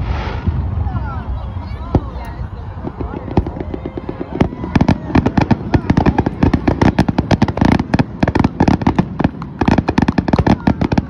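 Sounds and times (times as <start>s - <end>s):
fireworks bursting: 0.0s - 11.0s.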